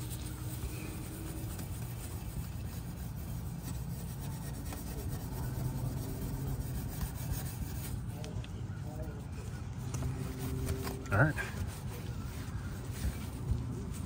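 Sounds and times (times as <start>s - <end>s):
steel wool scrubbing metal: 0.0s - 8.1s.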